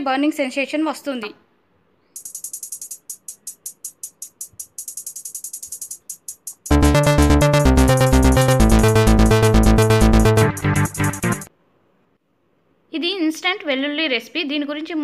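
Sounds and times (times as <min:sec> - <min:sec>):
electronic music: 0:02.2 - 0:11.5.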